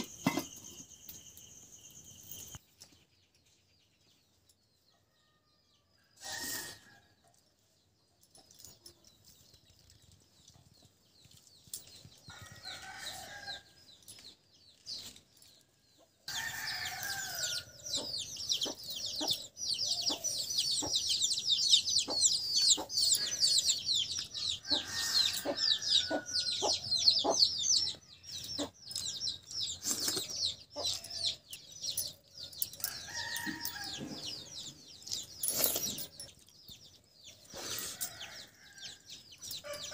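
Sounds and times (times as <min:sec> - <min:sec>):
birds chirping rapidly: 0:15.9 - 0:39.9.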